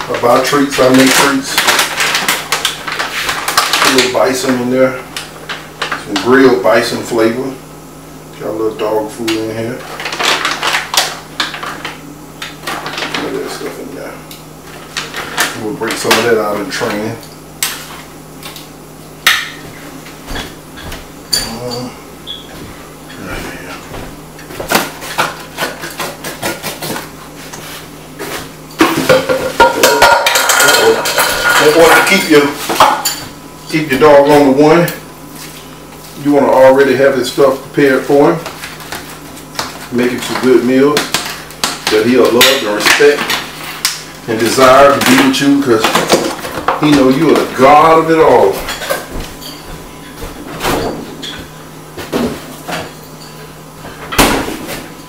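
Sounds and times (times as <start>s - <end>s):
refrigerator door thump shut: 54.2s - 54.7s.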